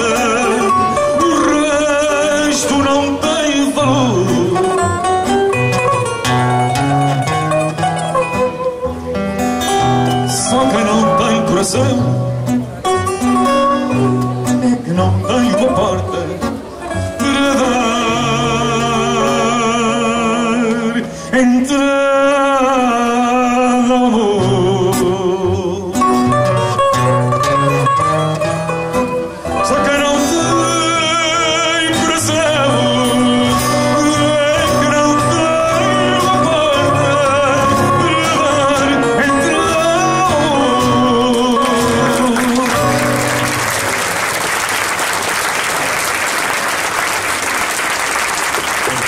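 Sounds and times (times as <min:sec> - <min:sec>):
man singing with vibrato: 0:00.0 - 0:43.6
guitars playing: 0:00.0 - 0:44.7
audience applause: 0:41.6 - 0:49.0.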